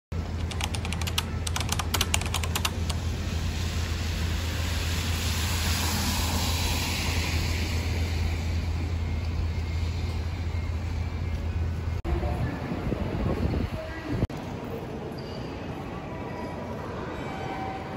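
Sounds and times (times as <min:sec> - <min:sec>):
road traffic rumble: 0:00.2 - 0:14.4.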